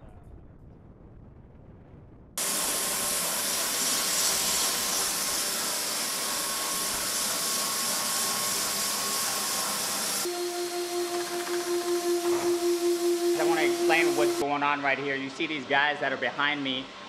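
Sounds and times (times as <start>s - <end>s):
floor machine grinding: 2.4s - 14.5s.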